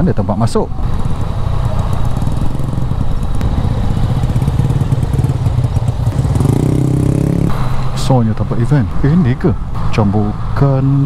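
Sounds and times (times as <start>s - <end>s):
motorcycle engine idling: 0.7s - 8.1s.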